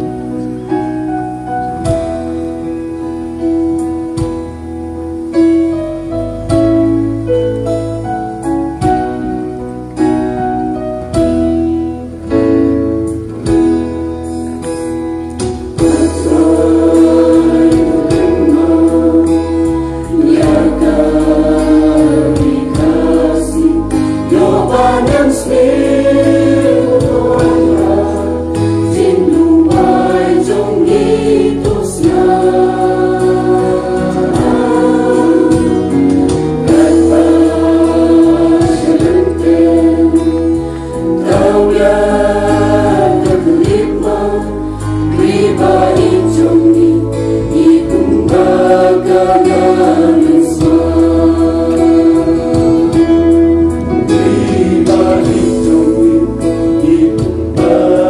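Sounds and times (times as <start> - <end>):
keyboard accompaniment: 0.0 - 58.0
mixed choir singing: 15.7 - 58.0.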